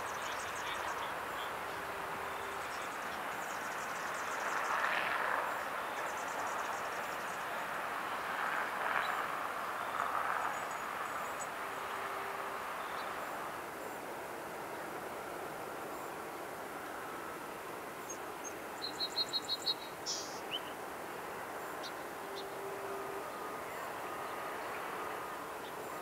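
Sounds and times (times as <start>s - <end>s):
waterside ambience hiss: 0.0s - 26.0s.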